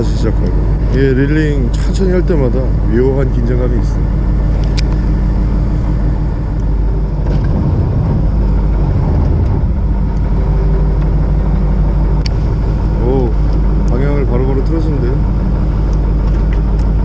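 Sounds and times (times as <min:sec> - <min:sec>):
boat engine idling: 0:00.0 - 0:17.0
wind: 0:00.0 - 0:17.0
water noise: 0:04.0 - 0:17.0.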